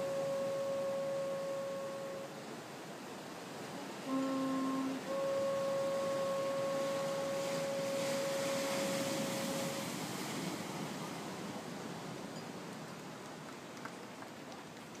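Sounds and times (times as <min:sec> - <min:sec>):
long blown horn note: 0:00.0 - 0:02.4, 0:03.8 - 0:10.0
ocean surf: 0:00.0 - 0:15.0.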